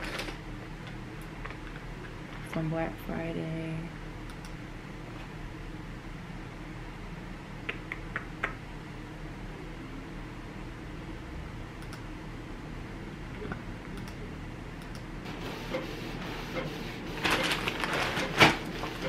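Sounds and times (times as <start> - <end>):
low steady hum: 0.0 - 19.0
plastic bags rustling: 17.1 - 19.0.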